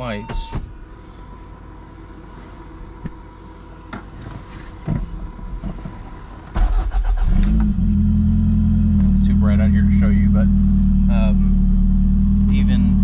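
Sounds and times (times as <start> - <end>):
car engine starting and idling: 6.5 - 13.0.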